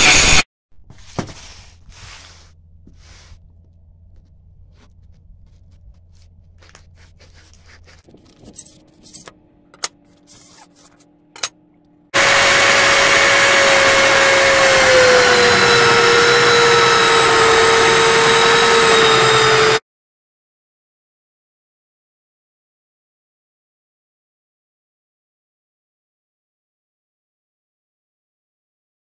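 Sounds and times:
belt grinder grinding steel: 0.0s - 0.4s, 12.2s - 19.8s
knocks and rustles of handled blades: 5.8s - 11.6s.

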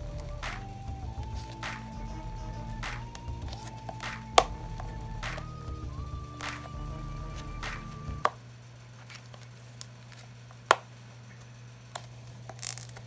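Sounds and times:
background music with held tones: 0.0s - 8.3s
steady low hum: 0.0s - 12.5s.

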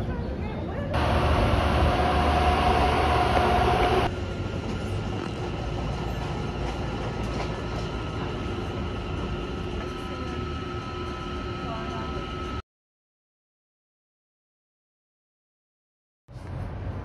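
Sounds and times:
idling diesel locomotives: 1.0s - 12.6s.

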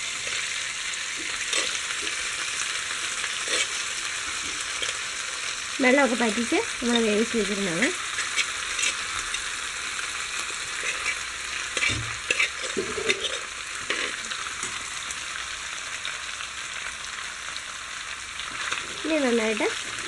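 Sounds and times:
beef sizzling in oil: 0.0s - 20.0s
metal spoon scraping pan: 1.2s - 2.3s, 3.4s - 5.0s, 8.1s - 9.6s, 10.7s - 14.3s.

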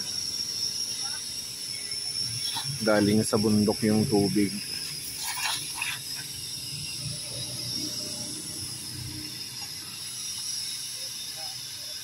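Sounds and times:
pressure washer spray hiss: 0.0s - 12.0s
vacuum whine: 6.0s - 10.9s.

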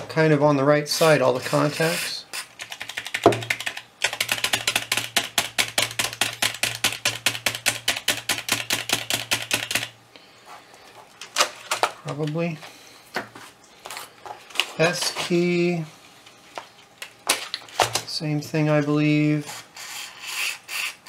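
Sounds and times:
keyboard keys clicking: 2.6s - 9.9s.

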